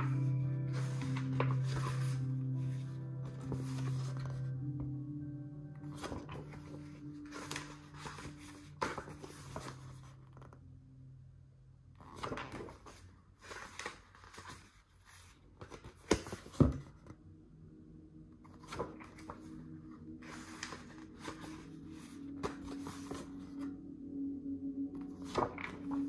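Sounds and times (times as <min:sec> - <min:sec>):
book pages rustling and flapping: 0:00.0 - 0:04.5, 0:05.8 - 0:10.6, 0:12.0 - 0:17.2, 0:18.4 - 0:23.7, 0:25.0 - 0:26.0.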